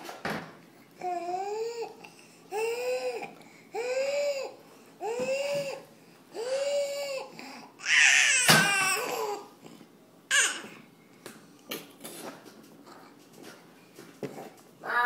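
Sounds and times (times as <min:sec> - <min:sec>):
toddler squealing and laughing: 0:07.8 - 0:09.4, 0:10.3 - 0:10.7.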